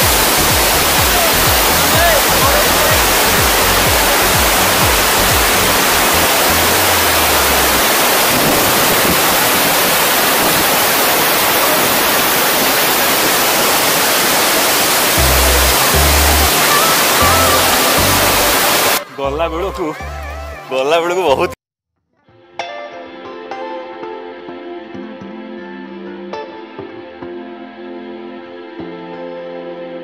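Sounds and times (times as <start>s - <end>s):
background music with low bass: 0.0s - 7.8s, 15.2s - 16.6s, 17.2s - 21.6s
waterfall roaring: 0.0s - 19.2s.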